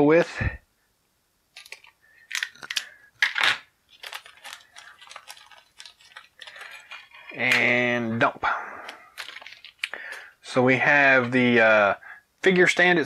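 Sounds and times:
plastic bag crinkling: 1.6 - 8.0, 8.7 - 10.4.

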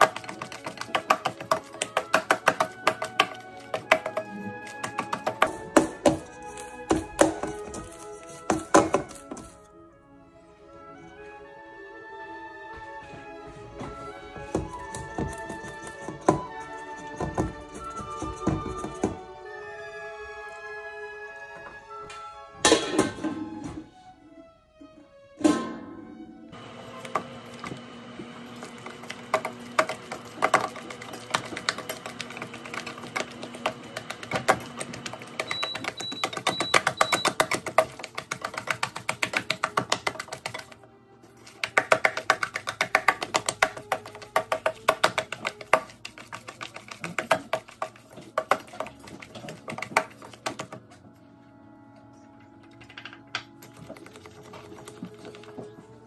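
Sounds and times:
dough slapping in steel bowl: 0.0 - 9.6, 28.4 - 50.8
soft background music: 0.0 - 56.0.

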